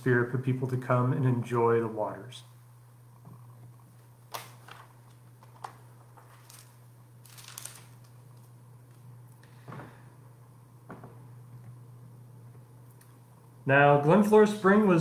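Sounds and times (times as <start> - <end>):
faint clicks and rustles: 3.2 - 10.0
low hum: 5.9 - 15.0.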